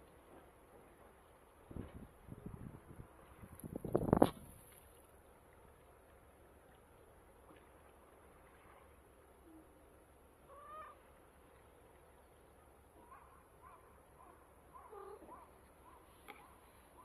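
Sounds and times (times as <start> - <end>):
distant bird calls: 10.5 - 11.1.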